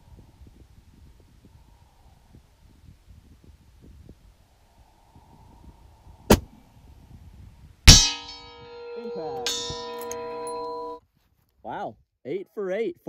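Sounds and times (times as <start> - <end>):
bullet clanging on steel plate: 7.9 - 11.0.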